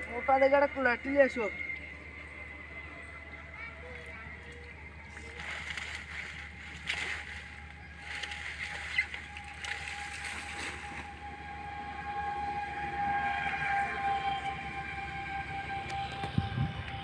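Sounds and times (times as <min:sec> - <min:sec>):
steady distant tone: 0:00.0 - 0:17.0
feet sloshing through muddy water: 0:03.8 - 0:17.0.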